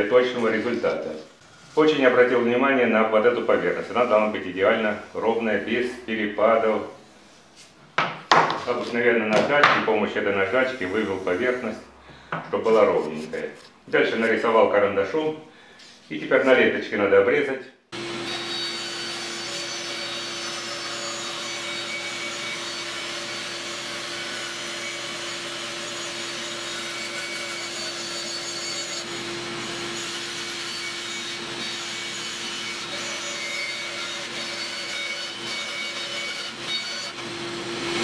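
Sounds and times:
bandsaw humming: 10.2 - 11.9, 18.0 - 38.0
bandsaw blade cutting wood: 10.4 - 11.8, 18.0 - 38.0.

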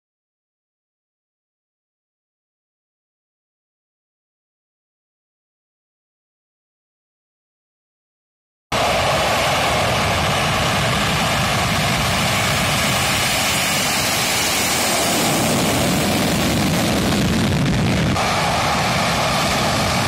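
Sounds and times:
jet engines roaring on takeoff: 8.7 - 20.0.

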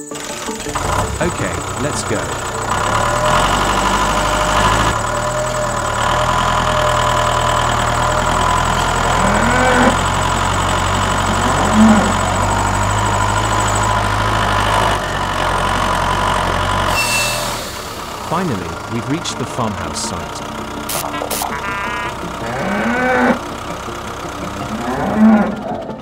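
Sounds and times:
diesel tractor engine running: 0.0 - 26.0
short pitched calls: 20.9 - 23.2.

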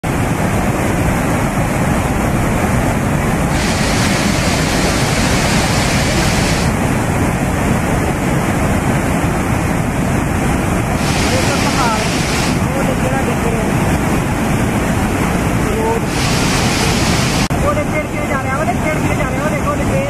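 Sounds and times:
flooded river rushing: 0.0 - 20.0
bright hiss: 3.5 - 6.7, 11.0 - 12.6.

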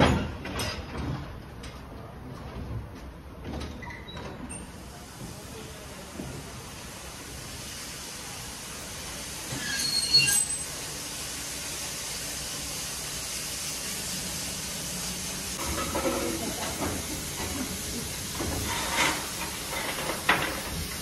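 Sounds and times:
steam locomotive hissing: 4.6 - 21.0.

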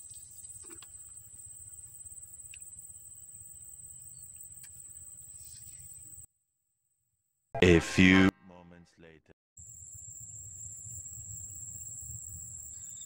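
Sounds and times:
insects droning: 0.0 - 7.4, 9.6 - 13.0.

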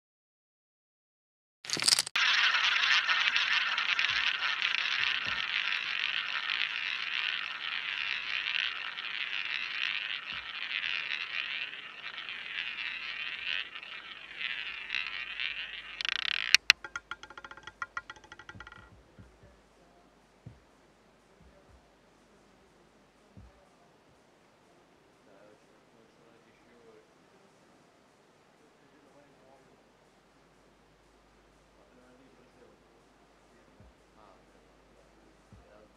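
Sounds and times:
roulette ball clacking and rattling: 1.7 - 19.5
roulette ball rolling: 1.7 - 19.6.

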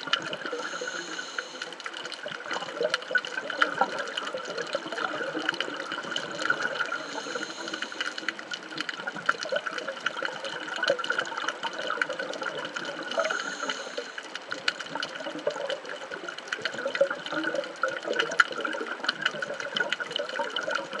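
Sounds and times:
underwater hiss: 0.4 - 2.1, 6.4 - 8.6, 13.1 - 14.4.

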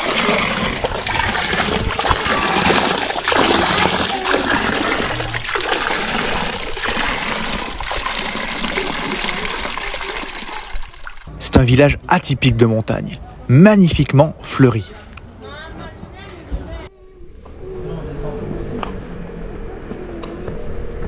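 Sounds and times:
fountain water pouring into trough: 0.0 - 11.3.

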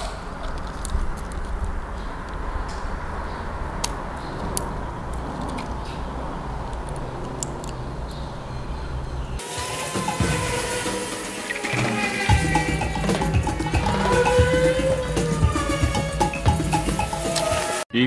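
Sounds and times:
small parts clicking and tapping: 0.4 - 2.4
background music: 9.4 - 18.0.

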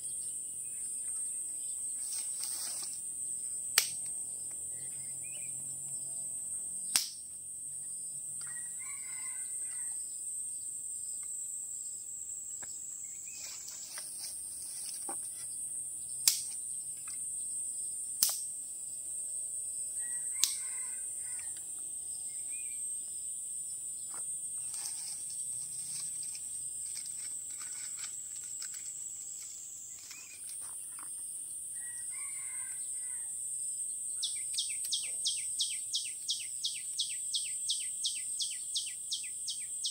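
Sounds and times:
high-pitched insect drone: 0.0 - 39.9
rooster crowing faintly: 8.4 - 10.0, 20.0 - 21.6, 31.8 - 33.4.

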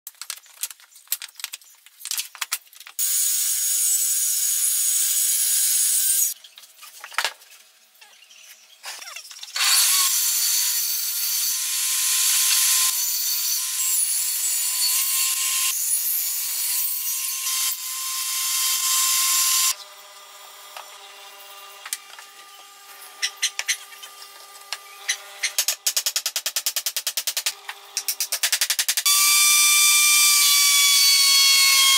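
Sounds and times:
wooden pieces knocking and clicking: 0.1 - 3.0, 25.4 - 29.1
table saw cutting wood: 3.0 - 6.4, 9.5 - 25.9, 29.0 - 31.9.

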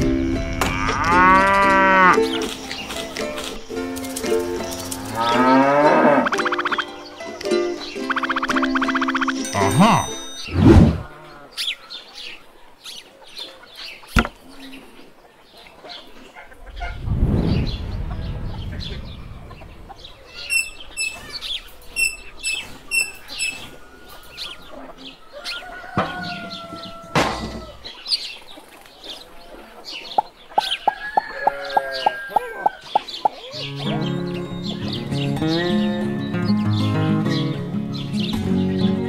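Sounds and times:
chickens clucking: 0.6 - 17.1, 17.8 - 38.8
small birds chirping: 2.1 - 39.0
low rumble: 16.6 - 20.9.

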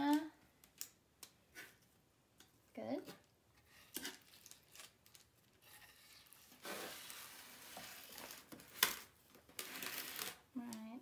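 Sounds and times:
spatula scraping in saucepan: 5.6 - 8.1.

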